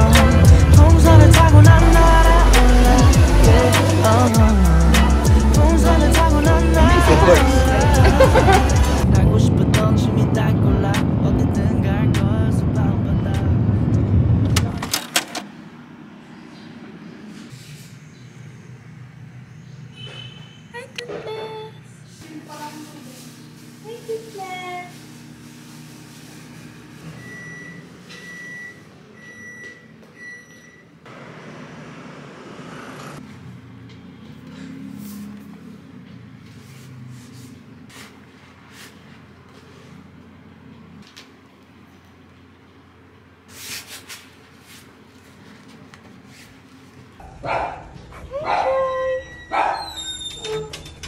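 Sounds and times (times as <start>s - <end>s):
small dog barking: 47.2s - 49.8s.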